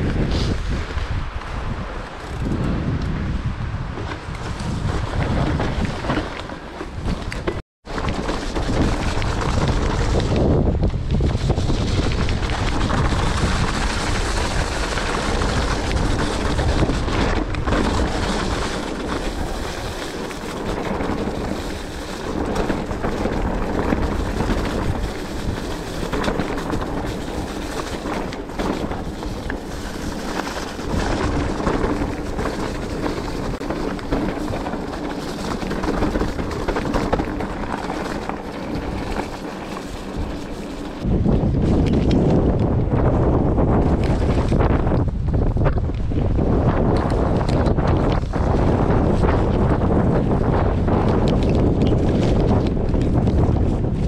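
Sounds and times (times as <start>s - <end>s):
mountain bike rumbling on trail: 0.0s - 54.0s
wind buffeting microphone: 0.0s - 54.0s.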